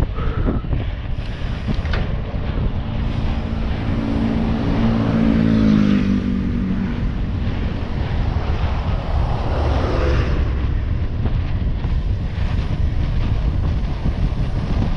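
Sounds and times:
wind on microphone: 0.0 - 14.9
motorbike engine passing by: 1.5 - 11.2.

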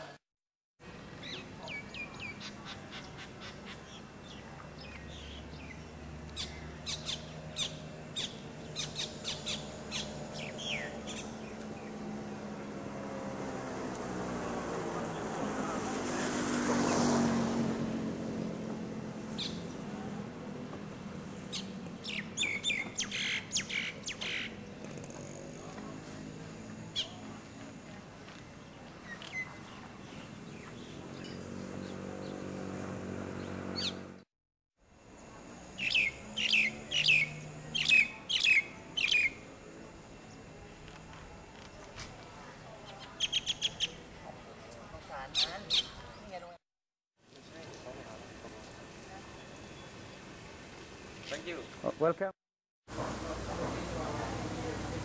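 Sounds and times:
small birds chirping: 1.2 - 13.4, 19.2 - 20.1, 21.3 - 32.8, 33.4 - 34.1, 35.2 - 40.9, 42.6 - 46.5
vehicle driving by: 5.4 - 22.0, 29.7 - 34.2, 52.9 - 55.0.

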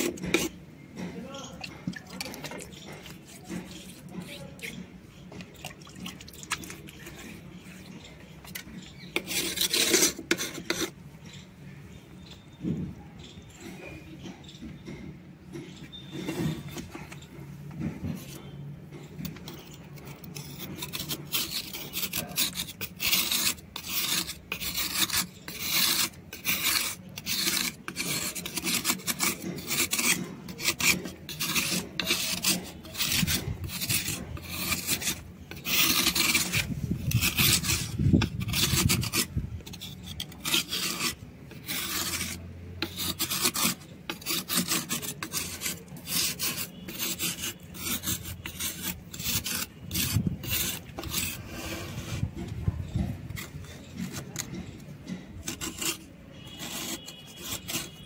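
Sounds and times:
metal blade scraping stone: 0.0 - 11.5, 18.0 - 58.0.

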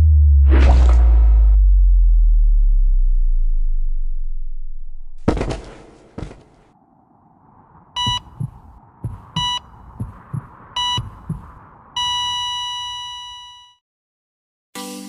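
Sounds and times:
heartbeat thumps: 8.0 - 12.3
heart monitor beep: 8.0 - 13.8.

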